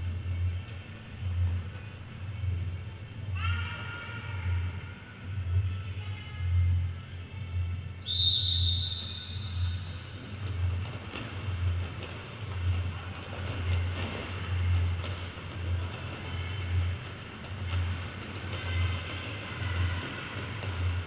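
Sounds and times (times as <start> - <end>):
referee whistle blast: 8.0 - 9.8.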